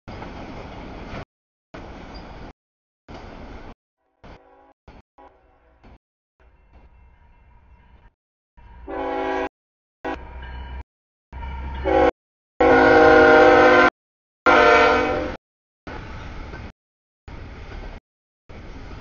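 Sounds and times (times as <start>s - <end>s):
train rumbling: 0.1s - 13.9s, 14.5s - 16.7s, 17.3s - 19.0s
locomotive air horn blasts: 4.1s - 6.0s, 8.8s - 10.4s, 11.8s - 13.9s, 14.5s - 15.4s.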